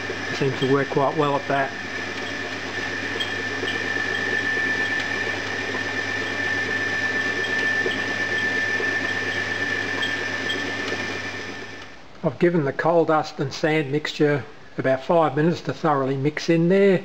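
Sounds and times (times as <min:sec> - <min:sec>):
high machine whine: 0:00.0 - 0:12.0
sand mixer running: 0:00.0 - 0:12.0.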